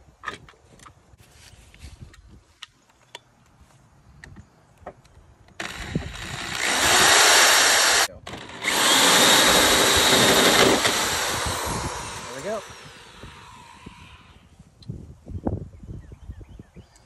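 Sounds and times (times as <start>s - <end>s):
drill cutting through metal panel: 5.6s - 14.4s.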